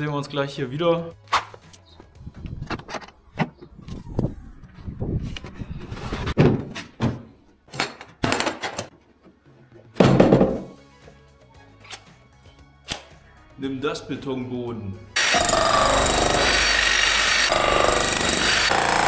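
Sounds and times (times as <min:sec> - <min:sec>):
background music: 0:00.0 - 0:03.8, 0:09.1 - 0:19.0
thuds and knocks: 0:06.4 - 0:07.3, 0:10.0 - 0:10.7.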